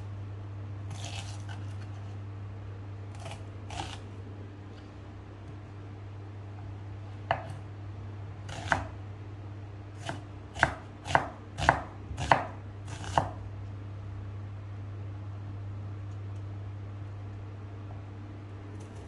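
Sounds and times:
steady low hum: 0:00.0 - 0:19.0
knife chopping on wooden board: 0:07.3 - 0:07.6, 0:08.5 - 0:08.9, 0:10.0 - 0:13.4.

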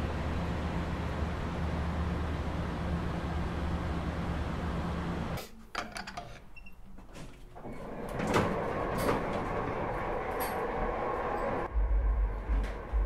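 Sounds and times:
elevator clicks and clunks: 0:05.7 - 0:11.7
elevator rattling run: 0:07.2 - 0:13.0.

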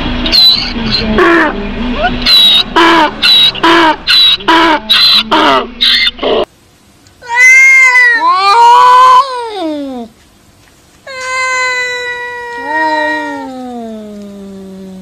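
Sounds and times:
donkey braying: 0:00.3 - 0:06.5
cat yowling: 0:07.2 - 0:09.7, 0:11.1 - 0:14.3.

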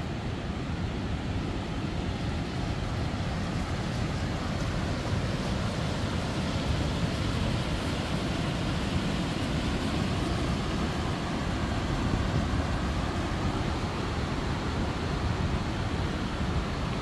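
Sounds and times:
river rapids roaring: 0:00.0 - 0:17.0.

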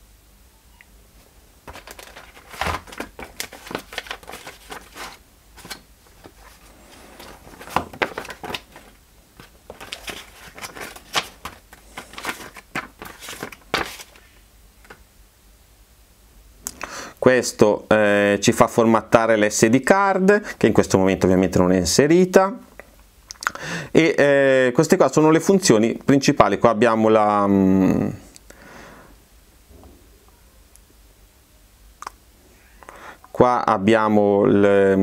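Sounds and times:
crinkling handling noise: 0:01.2 - 0:15.1.

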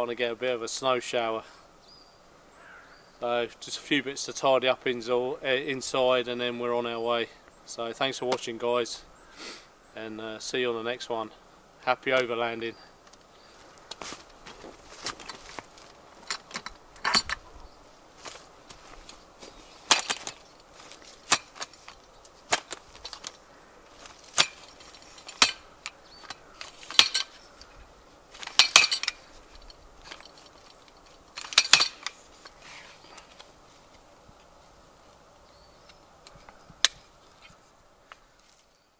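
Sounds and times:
metal ladder sections clacking: 0:14.0 - 0:17.5, 0:18.2 - 0:32.6.

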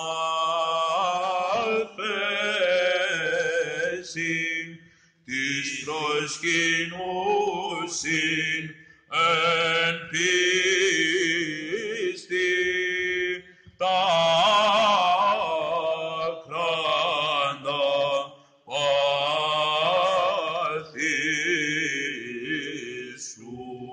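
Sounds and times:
low steady vocal drone: 0:00.0 - 0:04.7
singer breaths: 0:04.8 - 0:05.3, 0:08.7 - 0:09.1, 0:13.4 - 0:13.8.

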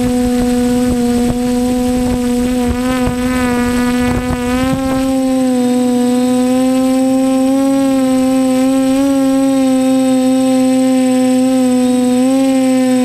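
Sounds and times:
wind buffeting microphone: 0:00.0 - 0:11.1
drone motors whining: 0:00.0 - 0:13.0.

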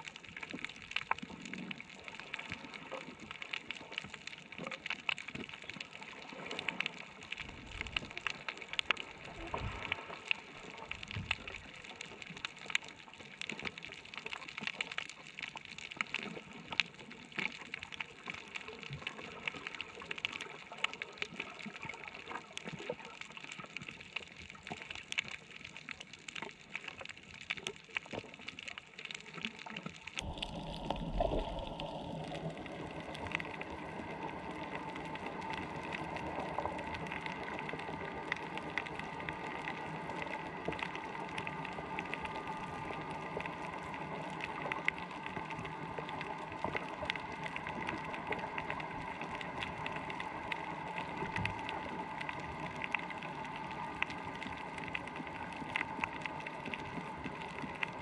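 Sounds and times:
watery hiss with crackling clicks: 0:00.0 - 0:58.0
brief low rumbles: 0:30.2 - 0:33.7.

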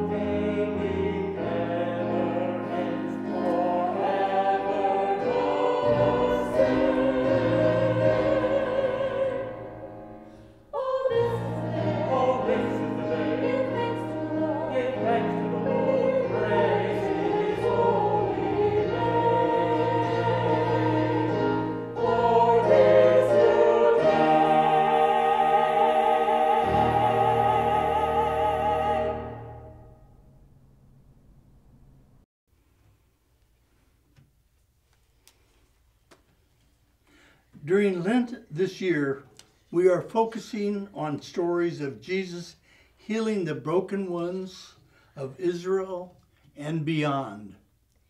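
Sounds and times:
choir singing a hymn: 0:00.0 - 0:30.1
keyboard: 0:00.0 - 0:31.7.

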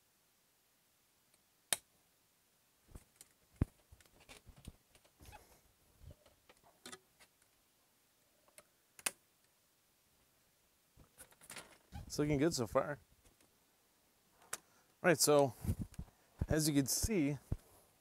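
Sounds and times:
small rattles: 0:11.0 - 0:12.1.

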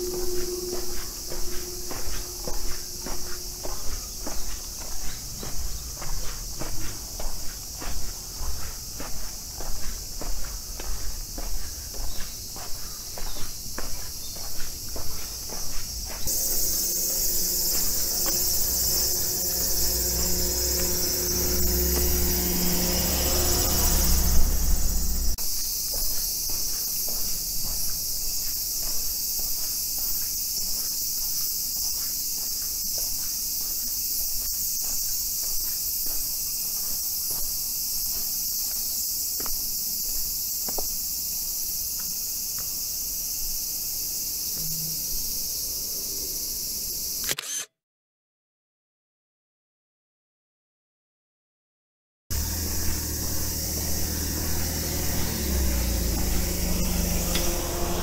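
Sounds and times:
footsteps on pavement: 0:00.0 - 0:43.6
high-pitched insect chorus: 0:00.0 - 0:47.6, 0:52.3 - 0:58.0
low mechanical hum: 0:15.0 - 0:25.4, 0:52.3 - 0:58.0.

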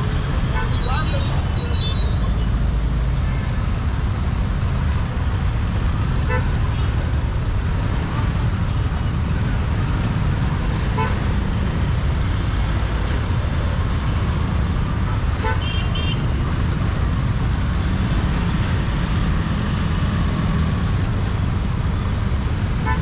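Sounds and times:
traffic rumble: 0:00.0 - 0:23.0
vehicle horn toots: 0:15.4 - 0:16.2.

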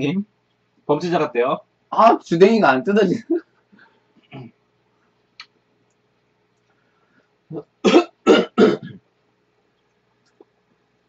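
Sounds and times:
person coughing: 0:07.8 - 0:09.0.

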